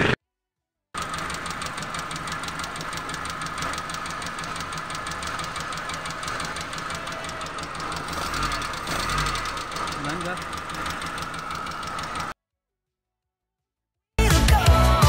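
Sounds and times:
car engine idling: 0:01.0 - 0:12.4
valve gear ticking: 0:01.0 - 0:12.4.

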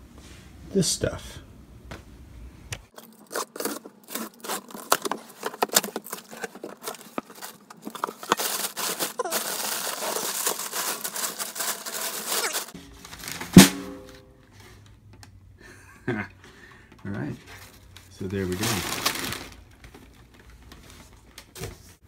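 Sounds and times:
plastic and paper crinkling: 0:02.9 - 0:13.6, 0:17.0 - 0:22.0.

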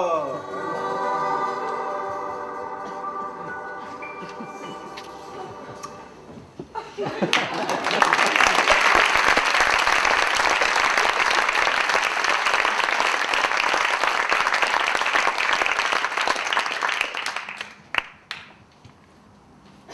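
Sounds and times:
audience applauding: 0:07.2 - 0:18.5.

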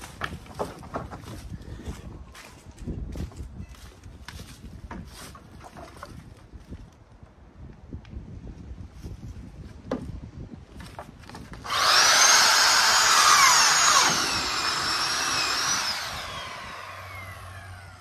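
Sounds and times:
power saw cutting plastic: 0:11.6 - 0:18.0.

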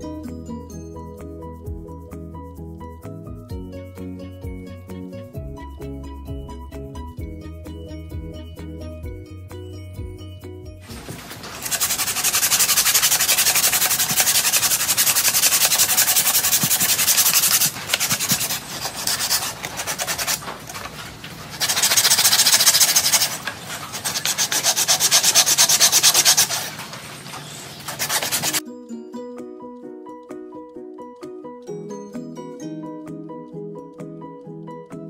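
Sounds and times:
sandpaper rasping on wood: 0:10.9 - 0:28.6.

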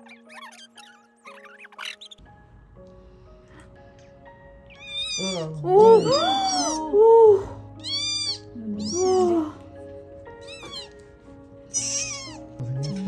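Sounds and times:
kitten mewing: 0:04.7 - 0:07.0, 0:07.8 - 0:09.6, 0:10.4 - 0:11.0, 0:11.7 - 0:13.0.

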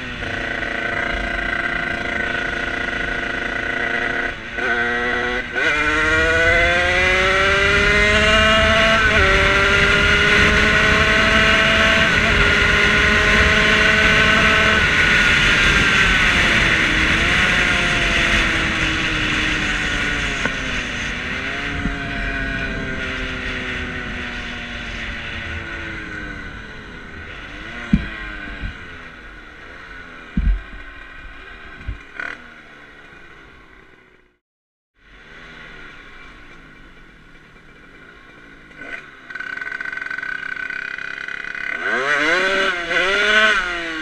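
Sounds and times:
moped engine slowing down: 0:00.0 - 0:05.4, 0:35.0 - 0:42.0
wind noise: 0:04.8 - 0:29.3.

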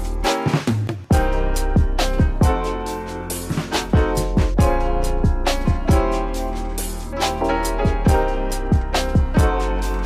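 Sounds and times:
electronic music with kick drum: 0:00.0 - 0:10.0.

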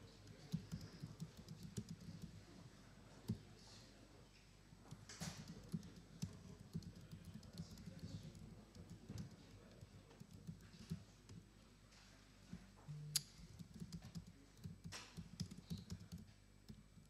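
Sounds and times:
typing on a keyboard: 0:00.2 - 0:02.4, 0:04.9 - 0:11.4, 0:13.5 - 0:17.0.

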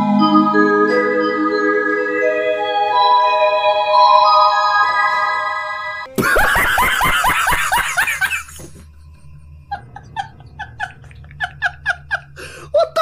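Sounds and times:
man laughing hard: 0:06.1 - 0:13.0
stifled giggling: 0:06.1 - 0:13.0.

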